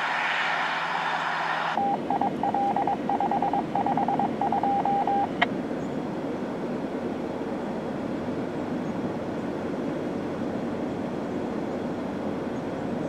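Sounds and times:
two-way radio beeps: 1.8s - 5.4s.

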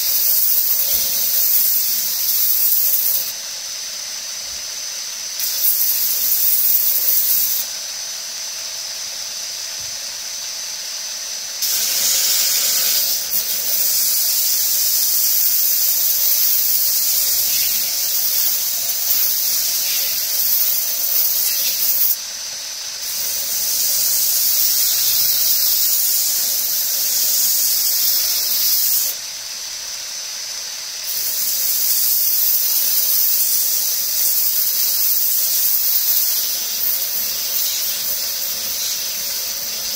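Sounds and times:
abrasive belt grinding hiss: 0.0s - 39.9s
belt grinder whining: 11.6s - 22.2s.

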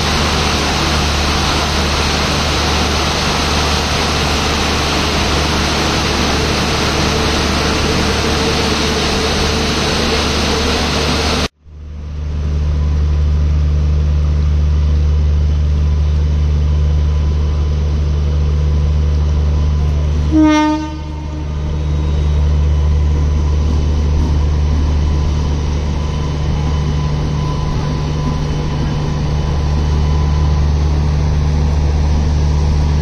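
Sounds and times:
electric locomotive humming: 0.0s - 33.0s
locomotive horn blast: 20.2s - 22.4s.

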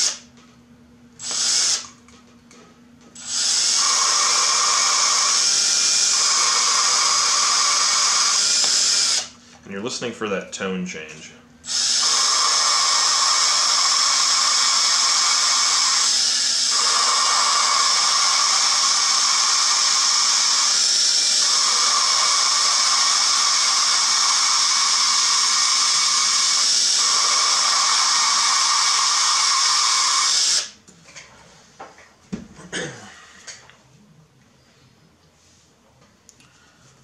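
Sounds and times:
cordless drill grinding valve: 0.0s - 0.2s, 1.2s - 1.9s, 3.2s - 9.4s, 11.6s - 30.8s.

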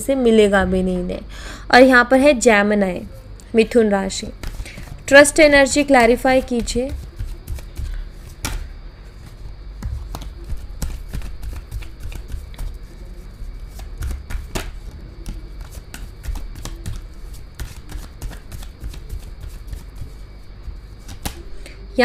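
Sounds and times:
cards being shuffled: 4.4s - 21.6s.

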